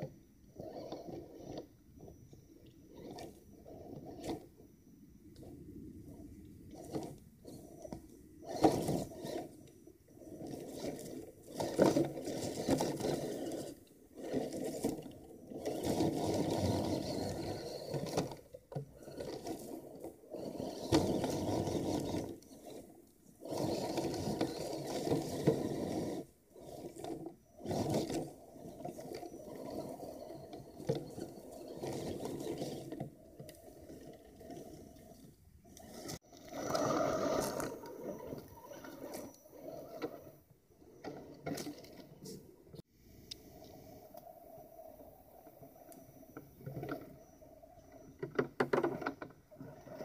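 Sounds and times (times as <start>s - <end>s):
toy car electric motor whirring: 0.0s - 4.6s, 5.4s - 42.4s.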